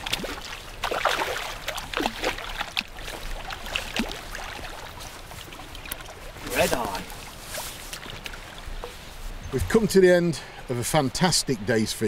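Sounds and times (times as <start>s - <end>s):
fish splashing in water: 0.0s - 8.6s.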